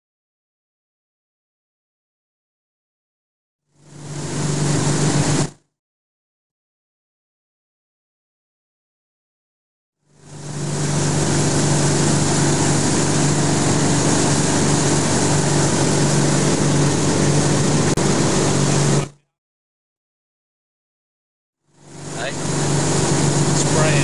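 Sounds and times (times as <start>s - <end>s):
boat engine humming: 3.8s - 5.5s, 10.1s - 19.2s, 21.8s - 24.0s
wind: 3.8s - 5.6s, 10.1s - 19.2s, 21.7s - 24.0s
water rushing: 4.0s - 5.5s, 10.3s - 19.1s, 21.9s - 24.0s.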